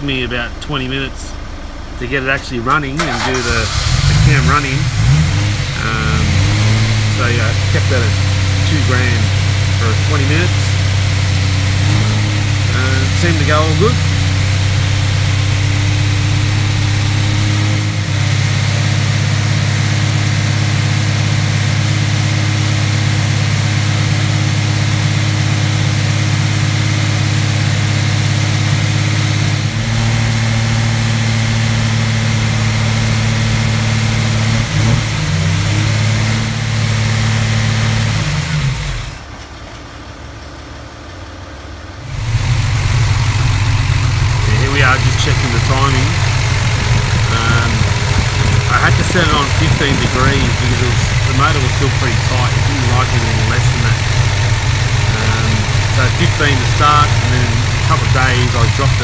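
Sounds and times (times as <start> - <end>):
engine running at raised speed: 0.0 - 39.4, 42.0 - 59.0.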